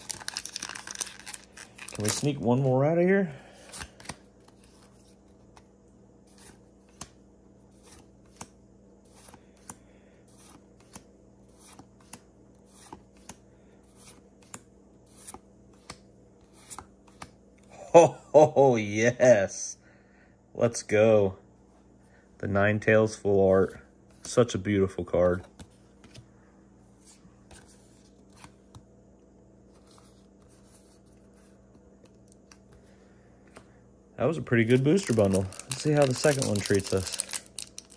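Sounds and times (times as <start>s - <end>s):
steady low hum: 0.0s - 37.9s
trading cards sliding and snapping: 3.6s - 5.7s, 10.4s - 17.4s
cards rubbing and clicking: 34.7s - 37.9s.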